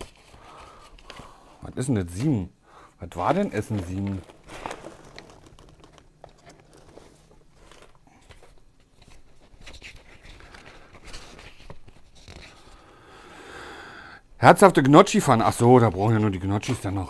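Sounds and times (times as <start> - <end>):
paper crinkling and rustling: 0.0 - 1.4, 3.1 - 12.8.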